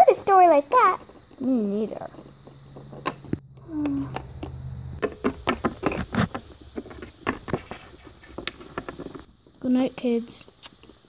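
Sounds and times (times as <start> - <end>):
brief low hum: 3.3 - 6.7.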